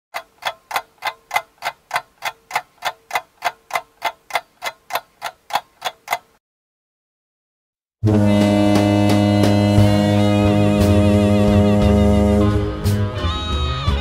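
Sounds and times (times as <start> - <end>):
sharp ticking: 0.2 - 6.4.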